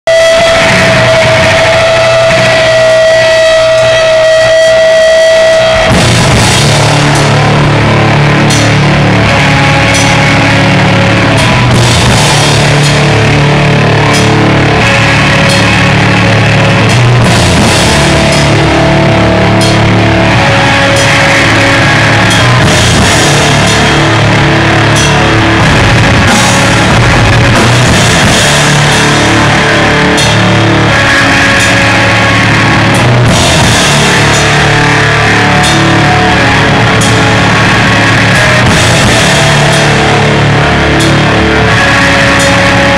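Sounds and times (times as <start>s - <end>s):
distorted guitar: 0.0s - 42.9s
fast drumming with cymbals: 20.8s - 42.8s.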